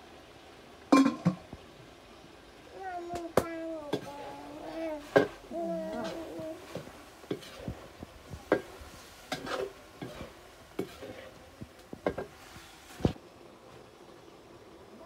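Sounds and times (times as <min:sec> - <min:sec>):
metal spatula scraping a wok: 0:03.9 - 0:13.2.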